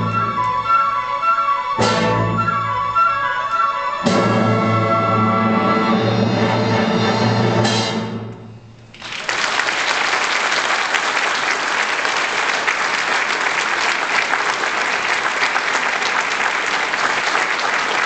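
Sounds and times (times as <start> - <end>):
orchestra chord: 3.6 - 8.8
audience applauding: 8.9 - 18.0.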